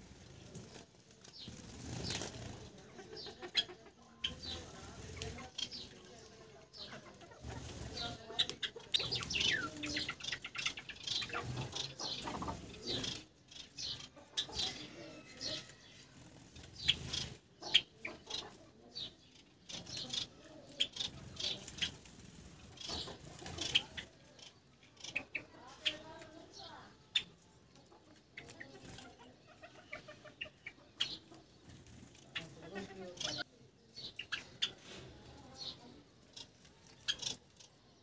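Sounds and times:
wing flutters: 0:00.0 - 0:02.9, 0:07.2 - 0:13.2, 0:20.8 - 0:24.2
finches chirping: 0:01.3 - 0:38.0.

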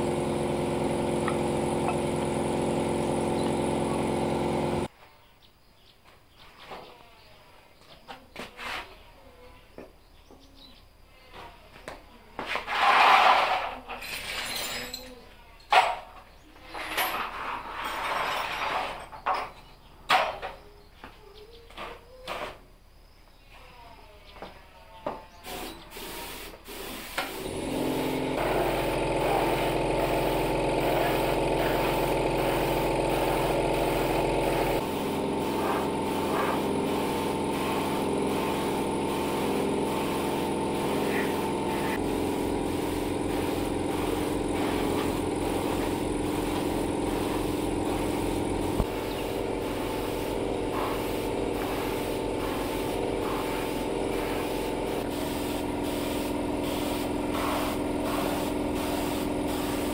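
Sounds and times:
air compressor running: 0:00.0 - 0:04.9, 0:25.4 - 0:59.9
paint spray hissing: 0:00.0 - 0:04.9, 0:25.4 - 0:59.9.

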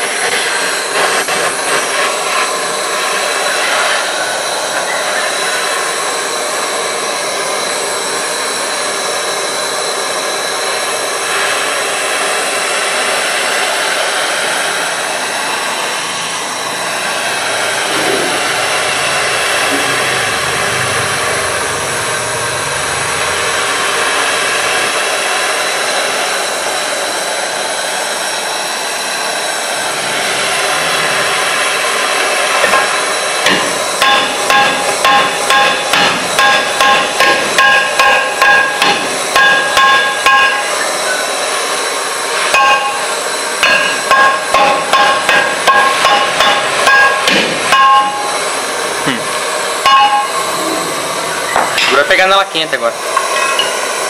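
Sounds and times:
gas torch flame hissing: 0:00.0 - 0:54.0
hammer striking metal drum: 0:32.7 - 0:40.7, 0:42.5 - 0:48.4, 0:49.8 - 0:50.4.

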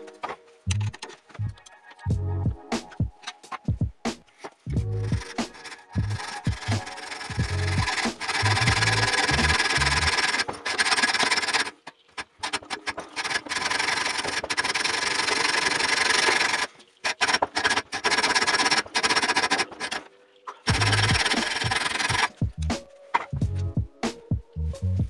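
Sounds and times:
hacksaw rasping through metal: 0:05.1 - 0:20.1, 0:20.7 - 0:22.4.

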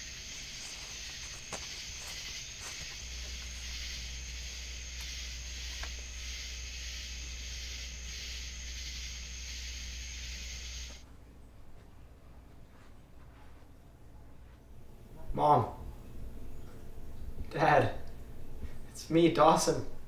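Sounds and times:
steady high hiss: 0:00.0 - 0:11.0
low even hum: 0:00.0 - 0:20.0.

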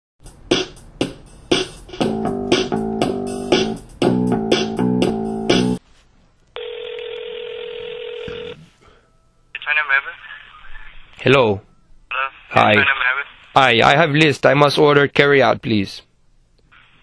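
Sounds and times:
intro music beat: 0:00.2 - 0:05.8
steady telephone line tone: 0:06.6 - 0:10.2.

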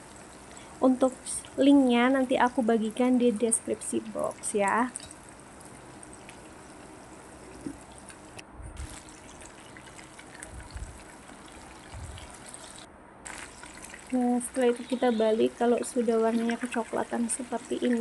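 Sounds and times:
chicken sizzling in oil: 0:03.8 - 0:18.0.

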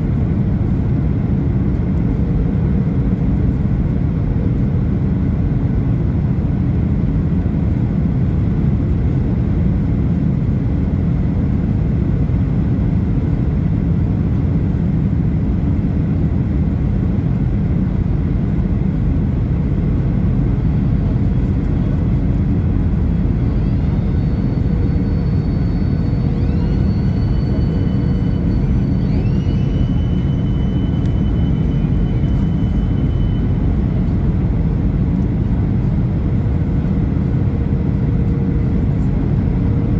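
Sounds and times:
airliner cabin rumble: 0:00.0 - 0:39.9
high rising whine: 0:17.7 - 0:39.9.

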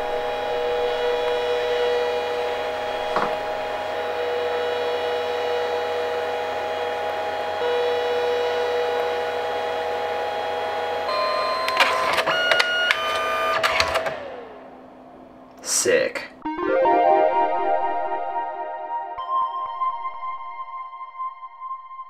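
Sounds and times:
short stepped tones: 0:00.0 - 0:14.6
printer feed motor whining: 0:00.0 - 0:15.4
printer sharp clicks: 0:11.3 - 0:14.4.

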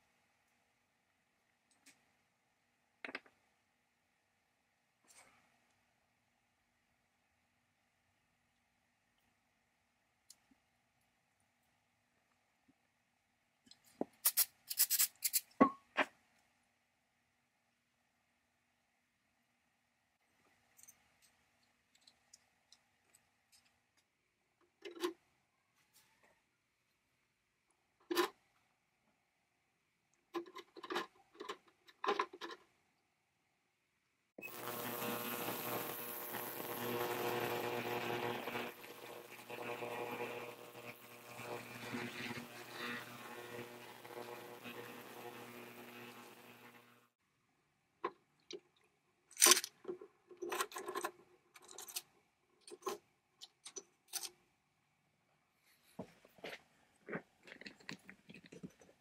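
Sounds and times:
ultrasonic cleaner hum: 0:34.4 - 0:47.1.

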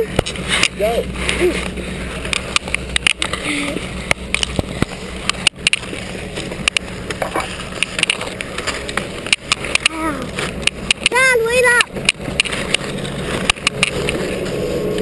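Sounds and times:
poles clicking against camera: 0:02.2 - 0:03.4, 0:04.0 - 0:11.2, 0:11.9 - 0:14.2.

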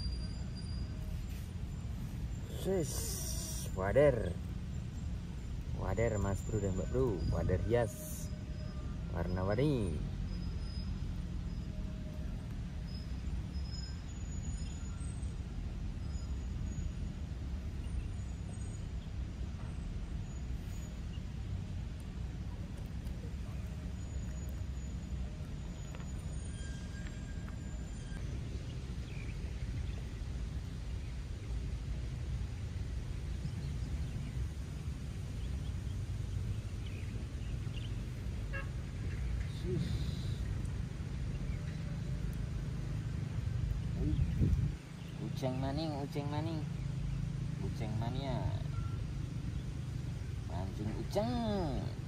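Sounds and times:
faint bird chirps: 0:00.0 - 0:32.5, 0:35.3 - 0:52.0
steady low rumble: 0:40.4 - 0:45.5
wind buffeting microphone: 0:44.0 - 0:45.0.

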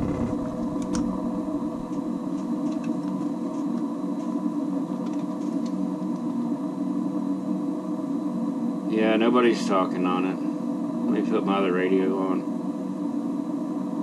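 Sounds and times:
steady multi-tone hum: 0:00.0 - 0:14.0.

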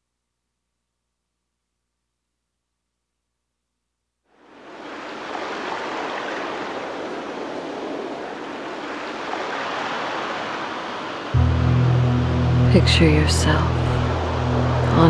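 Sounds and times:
rushing water: 0:04.4 - 0:15.0.

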